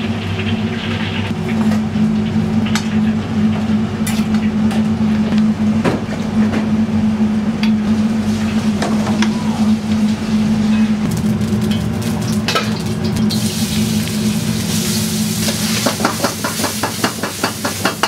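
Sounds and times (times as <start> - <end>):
low kitchen hum: 0.0 - 18.0
food sizzling in hot oil: 11.1 - 18.0.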